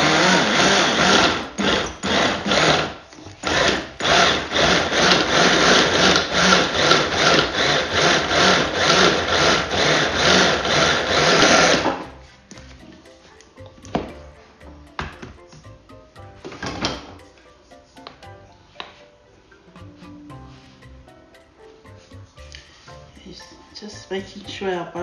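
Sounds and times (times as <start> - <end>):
food processor motor pulsing: 0.0 - 12.0.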